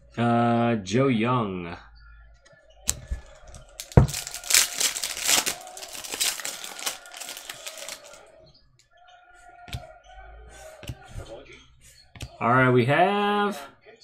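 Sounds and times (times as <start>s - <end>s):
foil wrapper crinkling: 2.9s - 8.2s.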